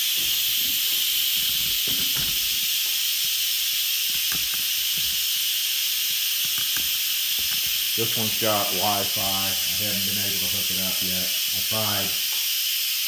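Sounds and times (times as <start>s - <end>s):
pressure cooker venting steam: 0.0s - 13.0s.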